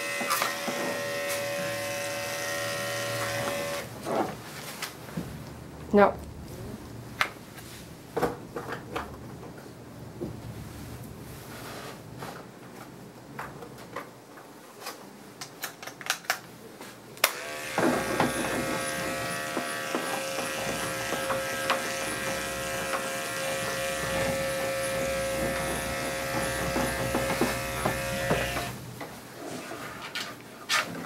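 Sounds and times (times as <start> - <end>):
electric clippers buzzing: 0.0 - 3.9, 17.2 - 28.8.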